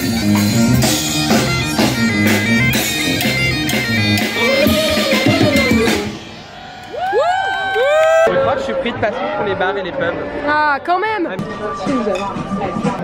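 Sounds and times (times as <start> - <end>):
electric guitar: 0.0 - 6.4
drums: 0.0 - 10.2, 11.2 - 13.0.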